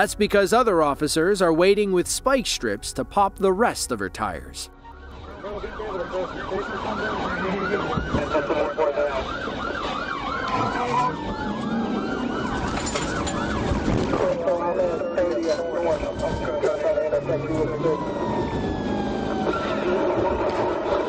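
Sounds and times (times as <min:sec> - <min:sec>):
police siren yelp: 0:04.1 - 0:21.0
siren gliding wails: 0:04.7 - 0:21.0
car road noise: 0:04.8 - 0:21.0.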